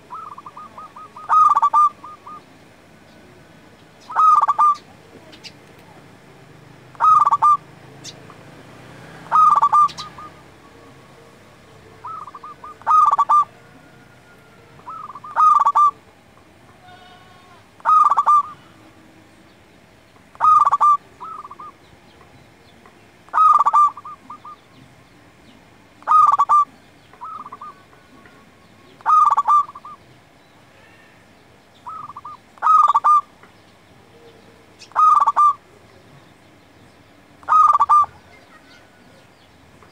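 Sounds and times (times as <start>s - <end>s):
dove cooing: 0.0s - 2.6s, 4.0s - 5.6s, 6.9s - 8.3s, 9.1s - 16.1s, 16.7s - 18.9s, 20.3s - 21.9s, 23.3s - 24.8s, 26.0s - 30.0s, 31.8s - 33.4s, 34.0s - 35.8s, 37.4s - 39.2s.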